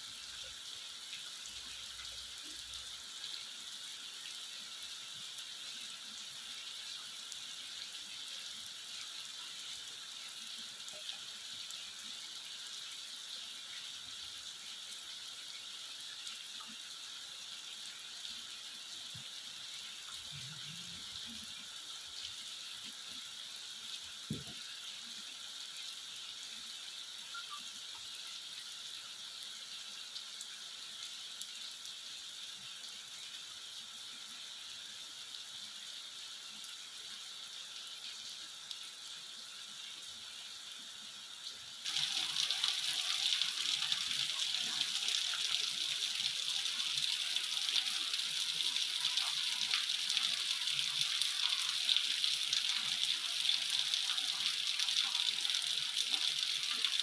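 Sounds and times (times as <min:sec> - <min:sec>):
rain on asphalt road: 0:41.8 - 0:57.0.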